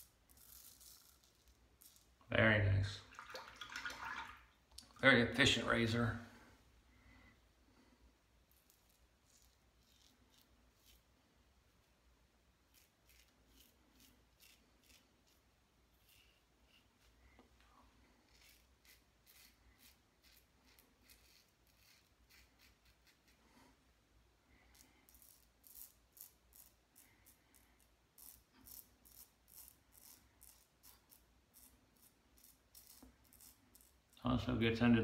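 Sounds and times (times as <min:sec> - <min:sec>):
razor scraping whiskers: 0:08.5 - 0:11.1, 0:12.7 - 0:17.2, 0:18.2 - 0:23.4, 0:24.7 - 0:34.2.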